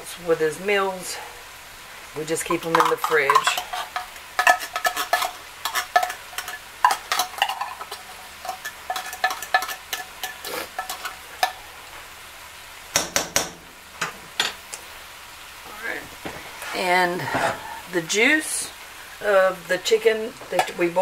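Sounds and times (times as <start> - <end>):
metal utensil clinking in tin can: 2.5 - 11.5.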